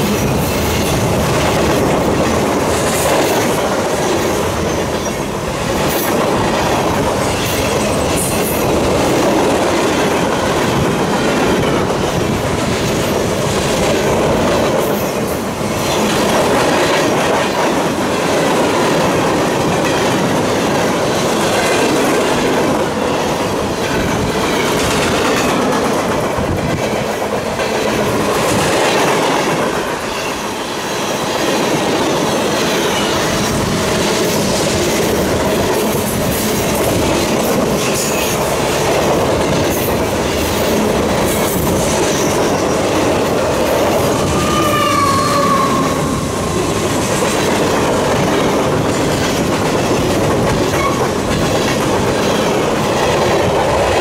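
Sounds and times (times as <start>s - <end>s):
freight train rumbling past: 0.0s - 54.0s
wheels clacking over rail joints: 31.4s - 54.0s.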